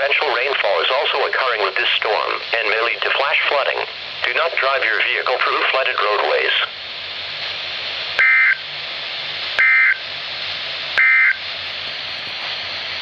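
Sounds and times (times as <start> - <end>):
radio hiss: 0.0 - 10.1, 10.8 - 13.0.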